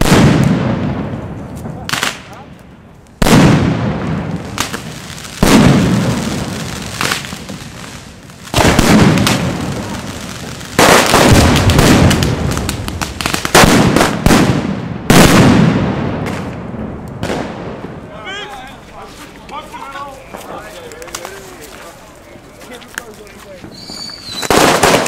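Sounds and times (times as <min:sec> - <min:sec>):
firecracker bangs: 0:00.0 - 0:02.4, 0:03.2 - 0:07.8, 0:08.5 - 0:18.2, 0:23.6 - 0:25.0
firecrackers crackling and popping: 0:00.0 - 0:25.0.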